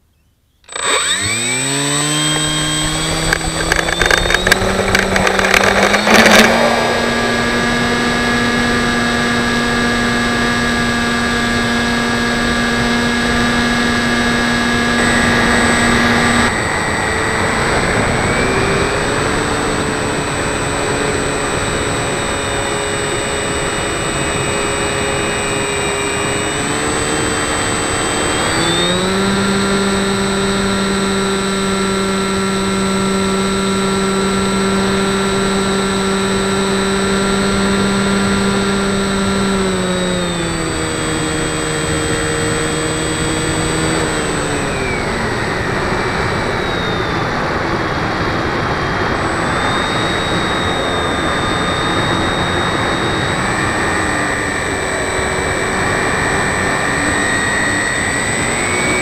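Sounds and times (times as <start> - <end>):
model plane motor whine: 0.0 - 59.0.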